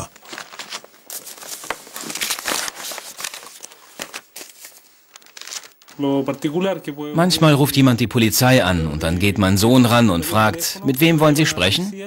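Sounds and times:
paper pages rustling: 0:00.0 - 0:06.6.

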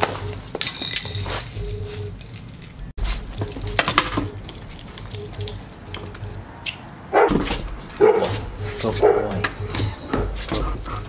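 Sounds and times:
dog barking: 0:07.1 - 0:09.4.

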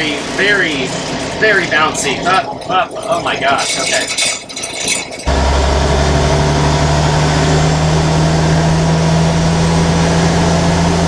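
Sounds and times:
truck engine drone inside cab: 0:05.2 - 0:11.0.

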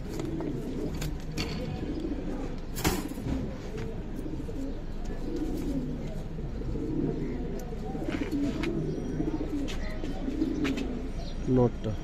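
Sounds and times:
pigeons cooing: 0:00.0 - 0:12.0.

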